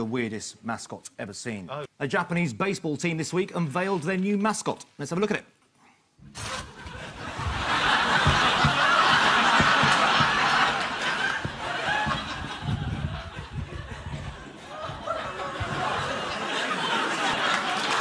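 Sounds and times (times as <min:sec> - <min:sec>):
studio audience laughing: 0:06.6 - 0:18.0.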